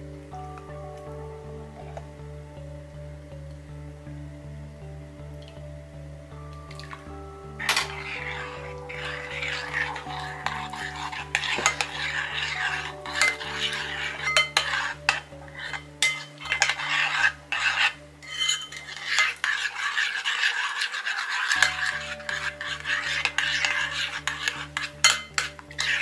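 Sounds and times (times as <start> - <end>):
fork clinking against bowl: 7.6 - 26.0
fork scraping sauce in bowl: 7.6 - 26.0.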